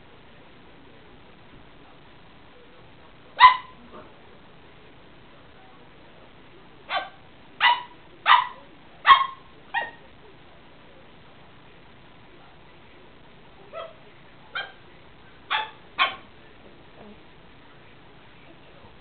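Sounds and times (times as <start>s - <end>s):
small dog barking: 3.4s - 3.8s, 6.9s - 10.0s, 13.7s - 14.8s, 15.5s - 16.3s.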